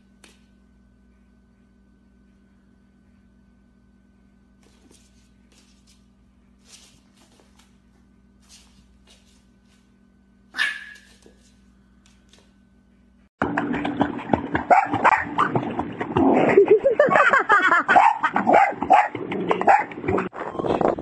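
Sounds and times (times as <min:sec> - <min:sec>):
dog barking and yelping: 0:10.6 - 0:11.2, 0:14.7 - 0:15.4, 0:17.9 - 0:19.9
water splashing in pool: 0:13.4 - 0:20.3.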